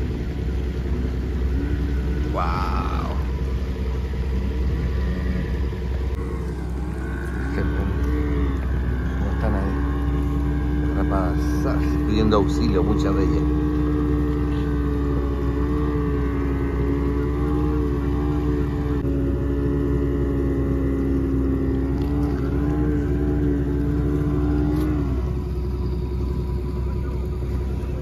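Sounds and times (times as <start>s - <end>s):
boat engine rumble: 0.0s - 28.0s
machinery hum: 0.0s - 28.0s.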